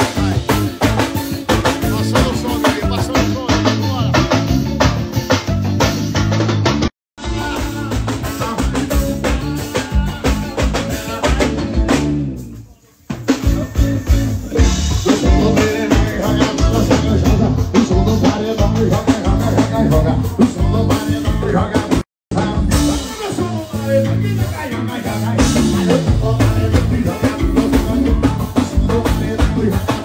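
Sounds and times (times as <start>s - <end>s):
man singing: 0.0s - 4.6s, 7.2s - 30.0s
band playing: 0.0s - 30.0s
drum kit and hand percussion: 0.0s - 30.0s.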